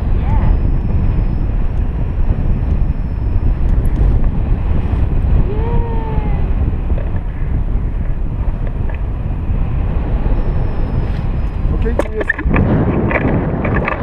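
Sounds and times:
wind buffeting microphone: 0.0 - 14.0
brief pitched tone: 0.2 - 3.8.

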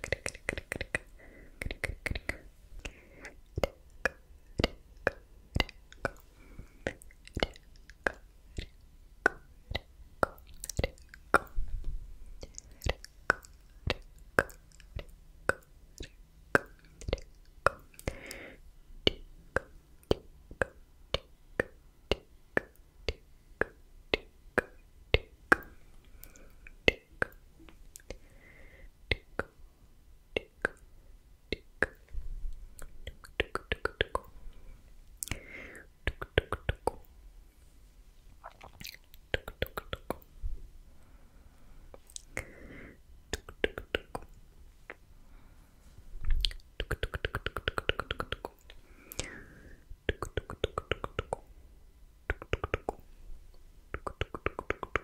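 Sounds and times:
tongue and lip clicks: 0.0 - 18.4, 19.0 - 28.2, 29.1 - 29.6, 30.3 - 30.9, 31.5 - 34.4, 35.1 - 37.1, 38.4 - 40.3, 41.9 - 42.6, 43.3 - 45.0, 46.2 - 49.4, 50.0 - 51.5, 52.3 - 55.0
breathy whispers: 46.8 - 50.6.

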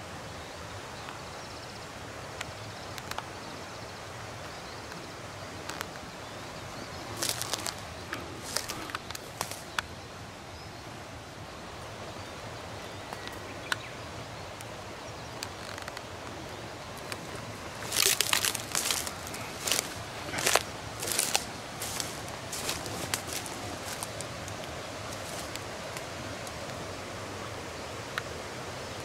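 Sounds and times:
background hiss: 0.0 - 29.0
dry leaves and twigs crackling underfoot: 5.6 - 6.1, 7.1 - 9.8, 15.3 - 26.8.

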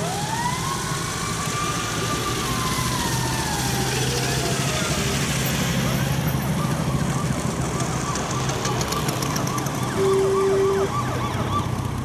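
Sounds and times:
passing car and scooter engines: 0.0 - 12.0
siren rising and falling: 5.9 - 12.0
horn blast: 9.9 - 11.0.

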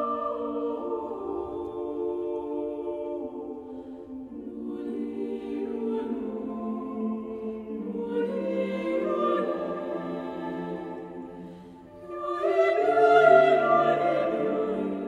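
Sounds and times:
choir singing a cappella: 0.0 - 15.0.

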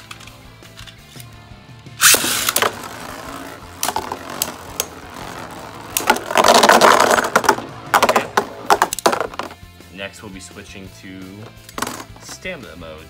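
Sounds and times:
spinning top launch rush: 2.0 - 8.4
spinning tops clacking: 2.0 - 9.4.

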